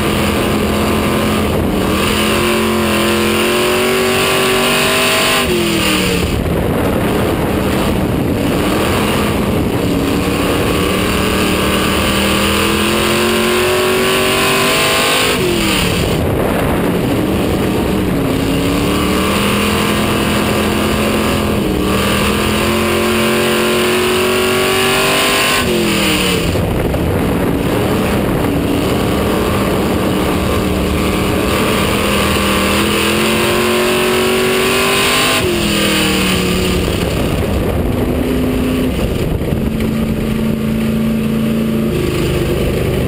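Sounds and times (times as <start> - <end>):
race car engine revving: 0.0 - 43.0.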